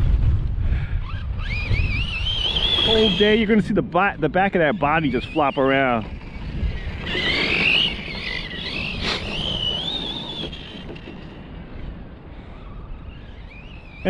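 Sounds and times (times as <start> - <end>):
low rumble: 0.0 - 5.2
wind: 0.0 - 14.0
electric motor whining: 1.0 - 3.7, 4.4 - 14.0.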